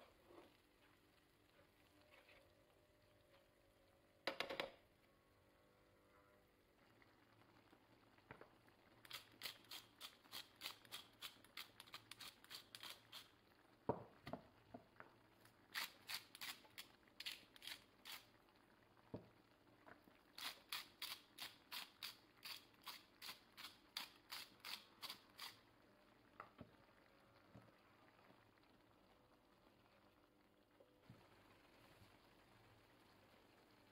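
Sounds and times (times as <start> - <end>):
spice grinders clicking: 9.1 - 13.3.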